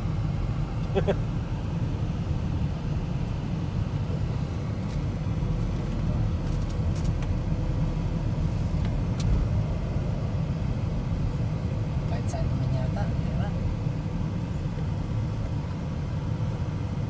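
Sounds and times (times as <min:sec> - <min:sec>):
moving car rumble: 0:00.0 - 0:17.0.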